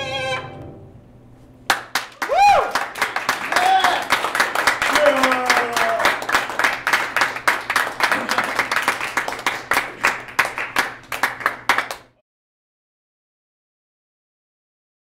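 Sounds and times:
audience clapping: 0:01.7 - 0:12.2.

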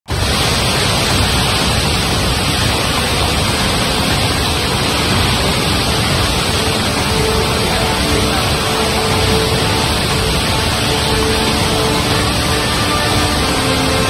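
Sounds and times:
river torrent roaring: 0:00.1 - 0:14.0.

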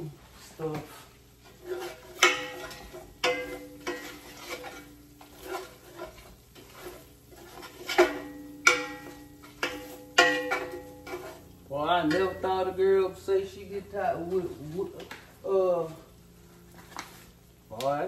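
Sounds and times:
stirring scrapes: 0:00.4 - 0:12.7, 0:16.4 - 0:17.5
metal utensil knocking on pot: 0:02.1 - 0:05.6, 0:07.9 - 0:11.4.

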